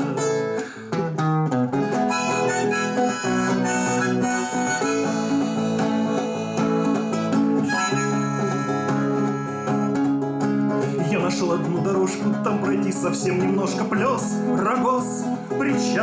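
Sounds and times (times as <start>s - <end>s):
harmonica melody: 0.0s - 11.3s
strummed acoustic guitar: 0.0s - 16.0s.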